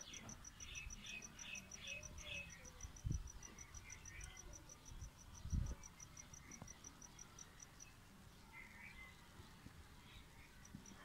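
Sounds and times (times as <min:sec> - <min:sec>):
high-pitched insect chirping: 0:00.0 - 0:07.9.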